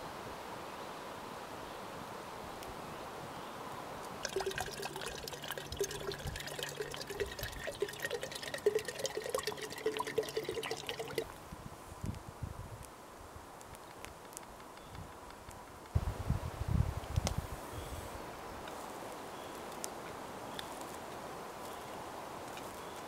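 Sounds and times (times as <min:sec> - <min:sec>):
water pouring into glass jar: 0:04.2 - 0:11.3.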